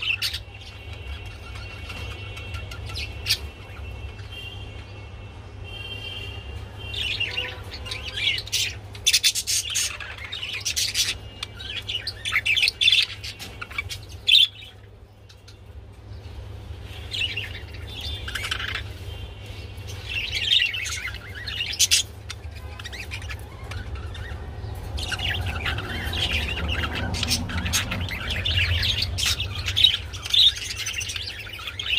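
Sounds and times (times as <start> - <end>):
budgerigars chirping and warbling: 0.0 - 31.9.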